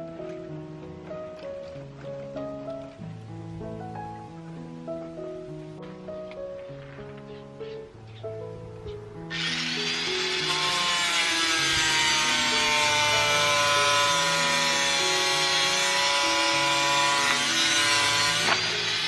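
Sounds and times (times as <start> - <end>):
slow low background music: 0.0 - 19.0
power tool cutting wood: 9.3 - 19.0.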